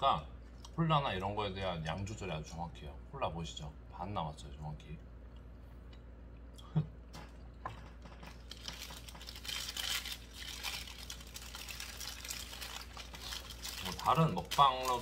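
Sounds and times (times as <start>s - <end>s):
paper wrapper crinkling: 8.4s - 15.0s.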